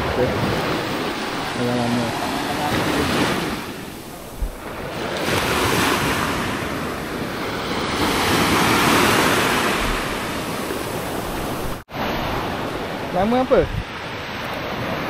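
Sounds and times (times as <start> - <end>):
sea surf washing ashore: 0.0 - 15.0
wind buffeting microphone: 0.0 - 15.0.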